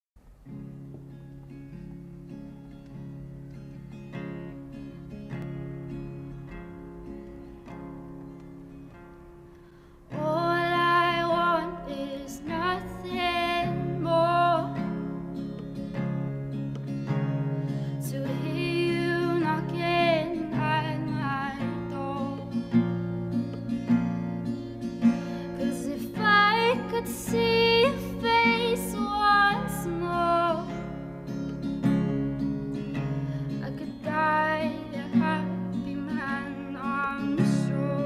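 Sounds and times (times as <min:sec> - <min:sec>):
acoustic guitar: 0:00.2 - 0:38.0
person singing: 0:10.1 - 0:14.9, 0:18.0 - 0:22.6, 0:25.6 - 0:30.8, 0:33.6 - 0:38.0.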